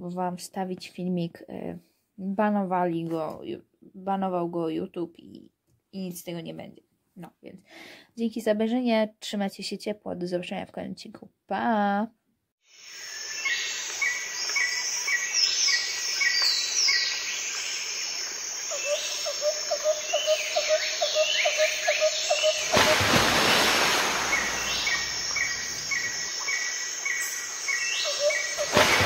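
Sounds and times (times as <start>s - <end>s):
whistled bird calls: 18.7s - 22.8s, 24.3s - 29.0s
loud rushing noise: 22.7s - 25.9s
birds chirping: 24.0s - 29.0s.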